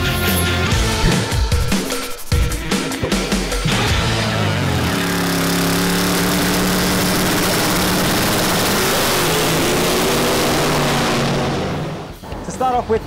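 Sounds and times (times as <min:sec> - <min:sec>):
drag car engine at full throttle: 0:03.6 - 0:12.4.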